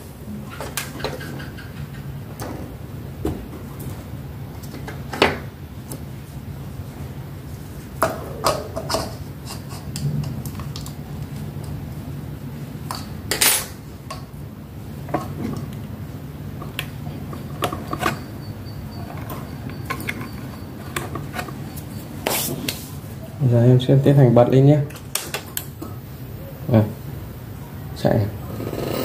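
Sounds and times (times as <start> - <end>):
steady low hum: 25.6 - 29.0.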